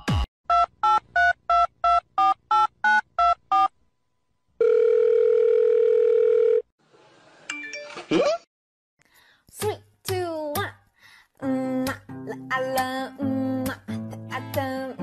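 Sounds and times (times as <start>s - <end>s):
telephone ring tone: 4.6s - 6.7s.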